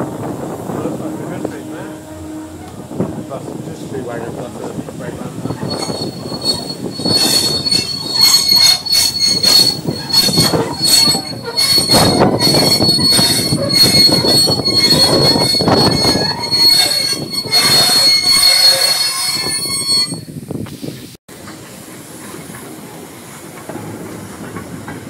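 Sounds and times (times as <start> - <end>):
train wheels clattering on rails: 2.7 - 19.5, 21.3 - 25.0
high wheel squeal: 5.1 - 20.4.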